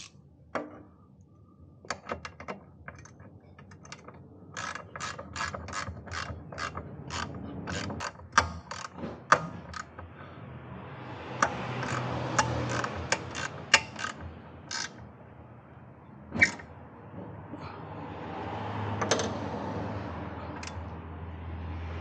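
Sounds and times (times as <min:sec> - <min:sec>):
ratchet wrench clicking: 0:00.0 - 0:00.2, 0:01.9 - 0:10.1, 0:11.3 - 0:15.0, 0:20.6 - 0:20.9.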